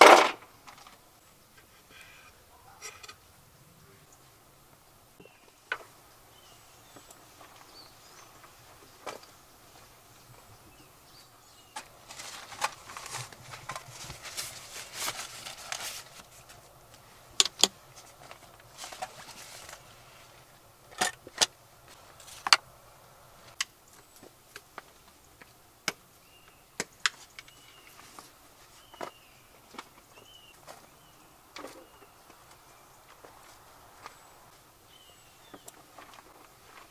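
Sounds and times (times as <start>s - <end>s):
cloth and bags rustling: 11.5s - 20.6s.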